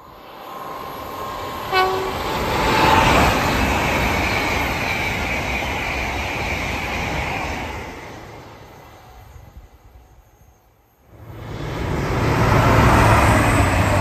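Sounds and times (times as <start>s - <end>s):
train wheels rushing on rail: 0.0s - 14.0s
train horn toot: 1.6s - 2.4s.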